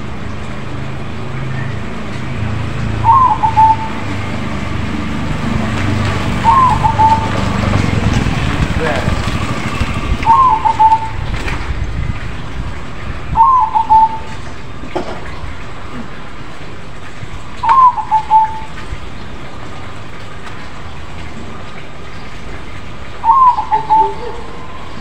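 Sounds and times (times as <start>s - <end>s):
dove cooing: 3.0s - 4.4s, 6.4s - 8.2s, 10.2s - 11.4s, 13.4s - 15.0s, 17.6s - 18.7s, 23.2s - 25.0s.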